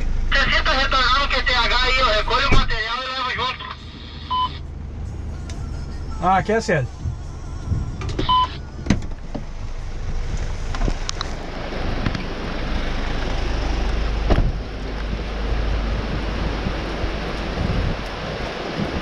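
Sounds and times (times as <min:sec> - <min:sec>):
vehicle engine idling: 0:00.0 - 0:19.0
wind noise on microphone: 0:06.9 - 0:19.0
rain: 0:09.6 - 0:19.0.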